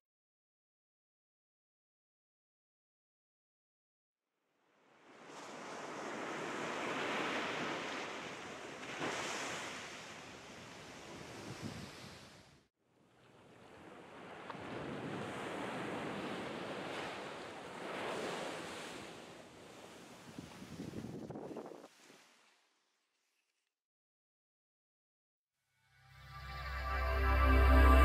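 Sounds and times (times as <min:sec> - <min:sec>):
waves breaking on a shore: 0:04.8 - 0:22.8.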